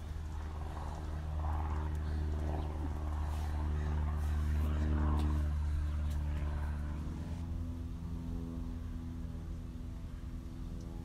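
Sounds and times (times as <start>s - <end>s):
vehicle engine humming: 0.0s - 11.0s.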